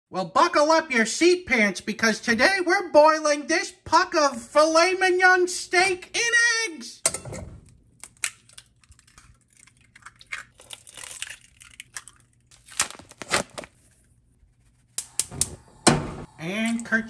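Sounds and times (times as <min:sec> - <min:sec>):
eggshells cracking: 0:07.9 - 0:13.8.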